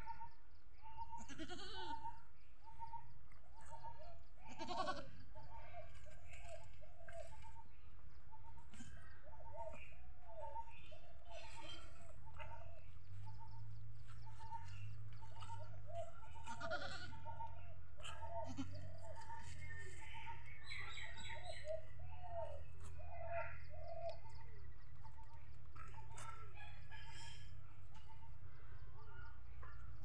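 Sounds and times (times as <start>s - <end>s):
goat calling softly: 1.0s - 2.2s, 4.4s - 7.5s, 14.2s - 20.0s.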